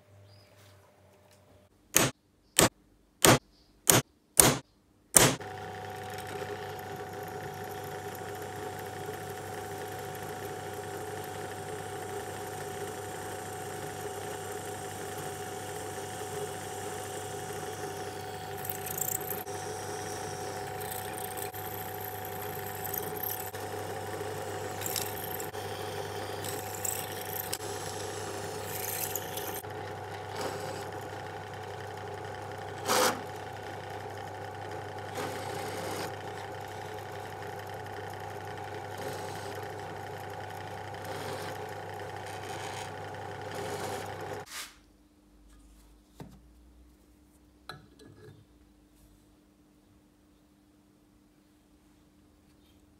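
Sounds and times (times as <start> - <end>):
sharp knock: 2.0 - 4.6, 5.2 - 5.4
drill bit cutting metal: 5.2 - 31.2
drill press motor whine: 5.2 - 44.5.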